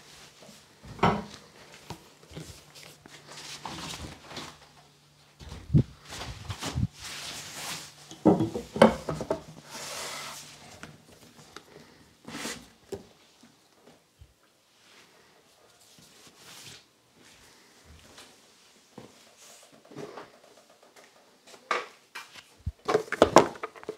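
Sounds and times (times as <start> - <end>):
rubbing and rustling: 1.4 - 11.5.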